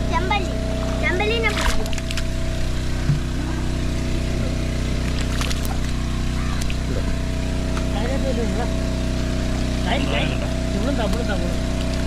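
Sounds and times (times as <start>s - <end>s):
petrol engine water pump running: 0.0s - 12.0s.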